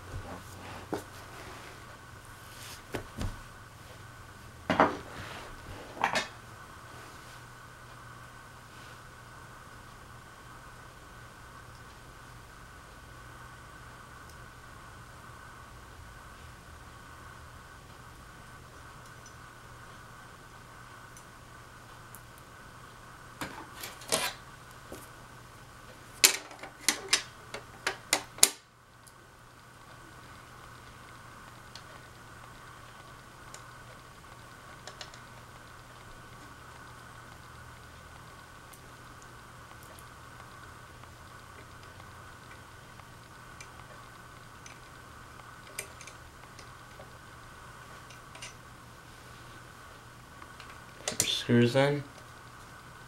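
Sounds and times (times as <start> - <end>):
faint steady hum: 0.0 - 53.0
small parts clicking and tapping: 48.0 - 48.6, 50.5 - 51.4.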